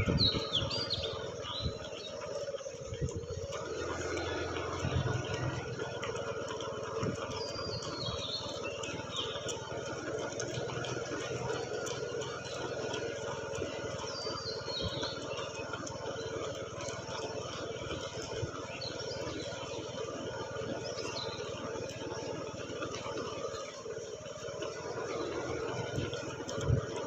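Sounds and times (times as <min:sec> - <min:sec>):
bird calling: 0:00.0 - 0:06.0.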